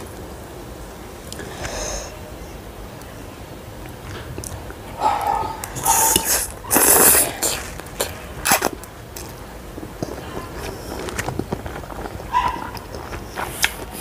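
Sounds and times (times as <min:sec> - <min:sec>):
person slurping noodles: 0:05.0 - 0:08.7
chewing with wet mouth clicks: 0:10.0 - 0:14.0.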